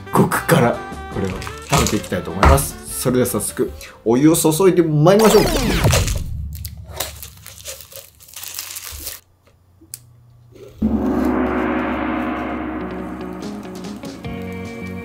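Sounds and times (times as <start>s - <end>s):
background music: 0.0s - 4.5s, 10.8s - 15.0s
packaging crinkling and tearing: 1.2s - 2.4s, 5.3s - 9.3s.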